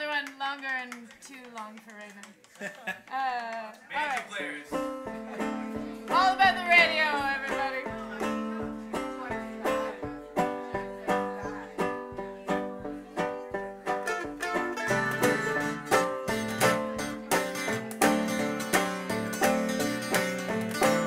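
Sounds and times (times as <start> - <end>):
banjo picking: 4.3 - 21.0
acoustic guitar strumming: 4.7 - 21.0.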